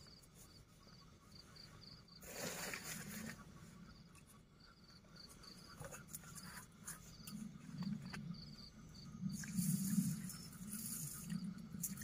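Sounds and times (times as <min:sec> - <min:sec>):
crickets chirping: 0:00.0 - 0:12.0
rustle: 0:02.2 - 0:03.6.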